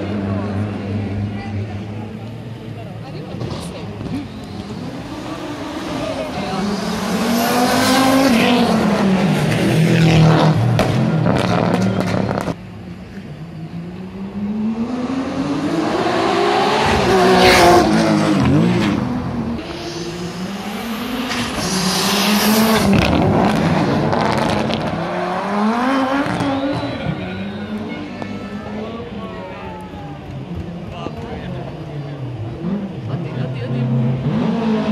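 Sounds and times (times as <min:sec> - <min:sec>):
rally car engine accelerating: 0:00.0 - 0:29.2, 0:30.2 - 0:34.9
rally car engine with crackling pops: 0:10.7 - 0:12.6.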